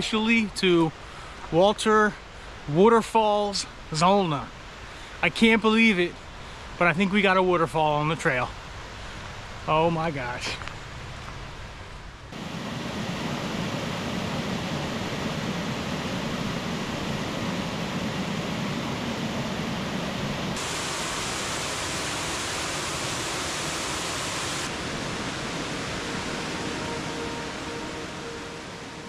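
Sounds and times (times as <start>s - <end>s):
water rushing over waterfall: 12.4s - 29.0s.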